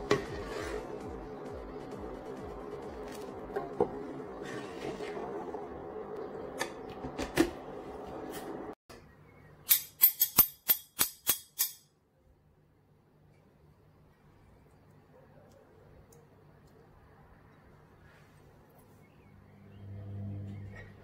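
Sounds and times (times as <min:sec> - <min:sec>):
ladle stirring thick soup: 0:00.0 - 0:01.0, 0:03.0 - 0:07.1.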